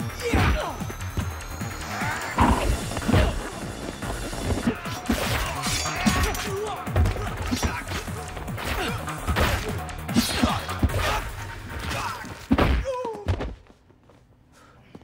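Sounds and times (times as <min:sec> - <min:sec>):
action film music: 0:00.0 - 0:12.9
punches and whacks: 0:04.6 - 0:13.6.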